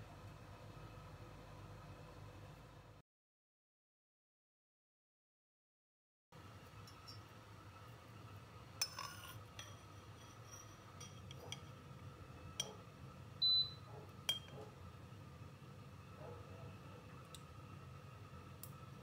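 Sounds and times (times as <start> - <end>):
metal spoon clinking glass bowl: 8.8 - 11.7, 14.3 - 14.6.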